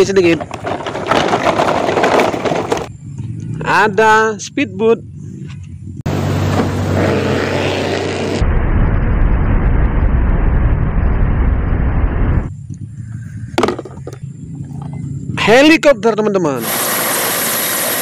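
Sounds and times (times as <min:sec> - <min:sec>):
powerboat engine roaring: 0:05.3 - 0:08.4.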